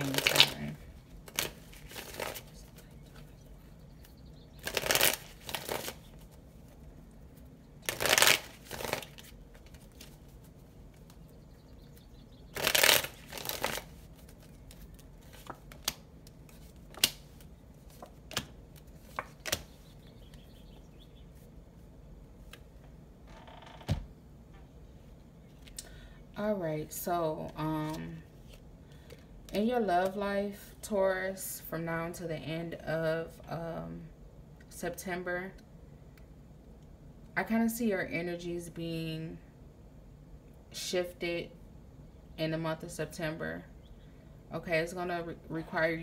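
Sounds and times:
cards being riffle shuffled: 0.0 - 3.4, 4.0 - 11.3, 12.6 - 20.4.

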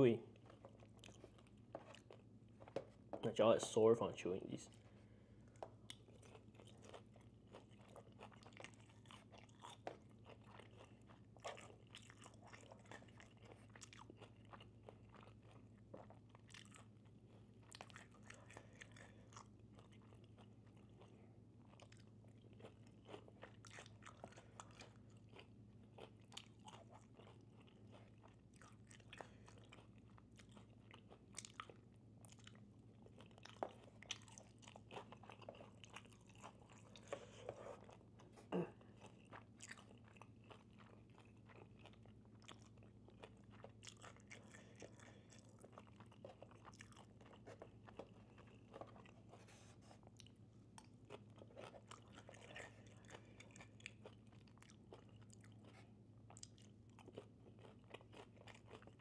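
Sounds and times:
chewing and biting food: 0.0 - 3.6, 4.2 - 59.0
food crunches: 5.6 - 21.0, 50.0 - 59.0.

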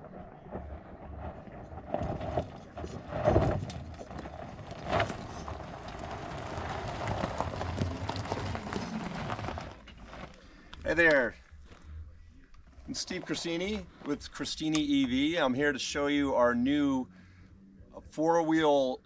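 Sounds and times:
vehicle jolts: 0.0 - 11.0
tyres crunching over stones: 0.4 - 11.9.

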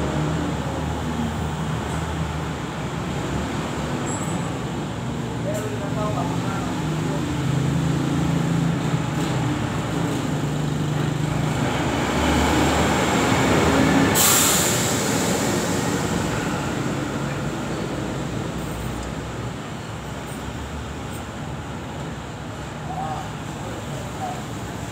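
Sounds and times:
traffic rumble: 0.0 - 24.9
sudden loud hiss: 14.0 - 16.4.

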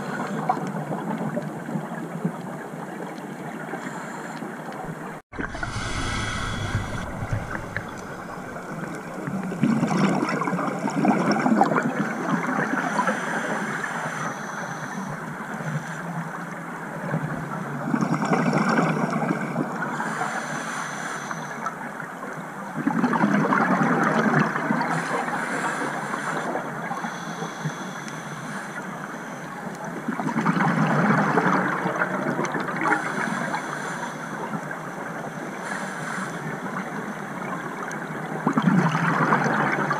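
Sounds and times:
regulator hiss: 5.4 - 9.6
exhaust bubbles gurgling underwater: 5.4 - 12.7.

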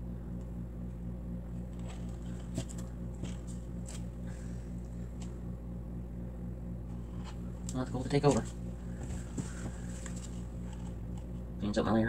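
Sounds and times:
low electrical hum: 0.0 - 12.0.

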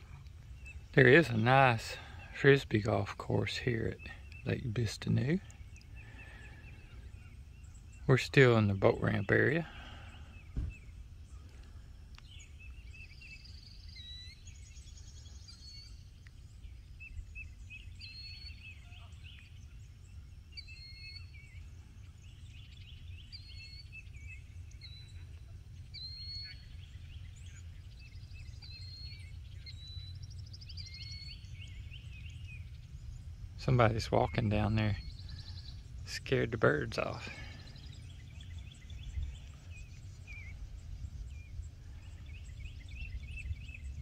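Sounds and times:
birds chirping and trilling: 0.0 - 44.0
steady low rumble: 24.1 - 44.0.

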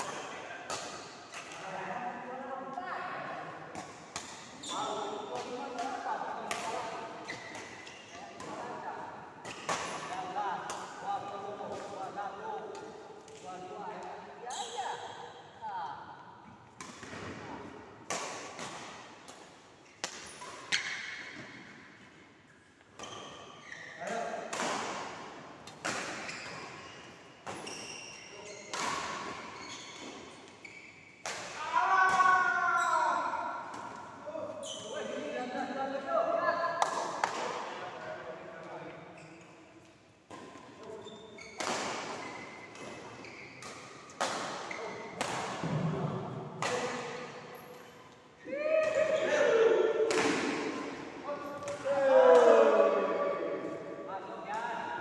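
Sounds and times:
rackets hitting shuttlecock: 16.8 - 21.6, 24.0 - 26.8, 28.7 - 30.5, 41.6 - 47.8, 50.0 - 52.6.

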